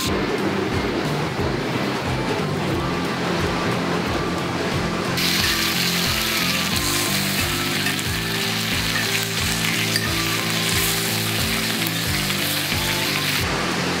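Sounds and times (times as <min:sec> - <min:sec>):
background music with steady beat: 0:00.0 - 0:14.0
meat sizzling in a skillet: 0:05.2 - 0:13.5.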